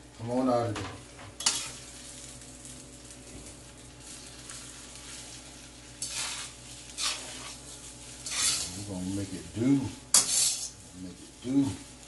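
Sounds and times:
food sizzling in a wok: 0:00.9 - 0:12.0
spatula scraping a pan: 0:01.4 - 0:01.9, 0:04.0 - 0:12.0.

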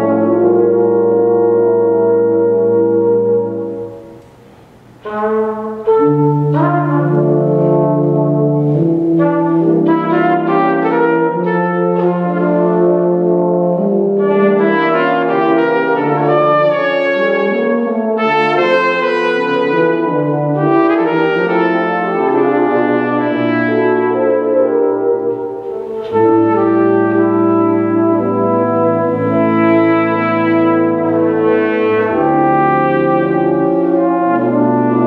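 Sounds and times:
brass ensemble sustained chords: 0:00.0 - 0:35.0.

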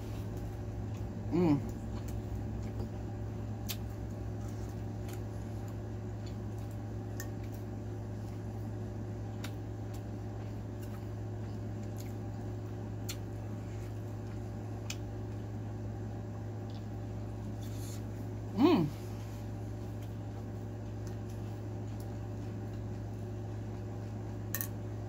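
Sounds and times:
steady low hum: 0:00.0 - 0:25.0
wet chewing and mouth clicks: 0:13.0 - 0:15.5.

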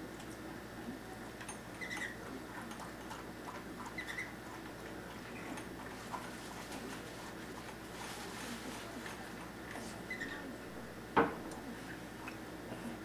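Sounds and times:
dog eating from plastic bowl: 0:01.3 - 0:10.4.

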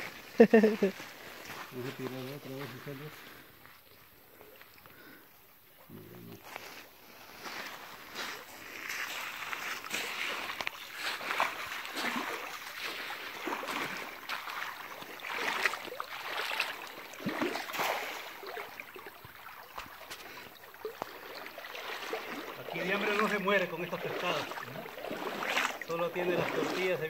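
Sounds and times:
person wading through water: 0:00.0 - 0:27.0
cast net splashing into water: 0:08.2 - 0:27.0.

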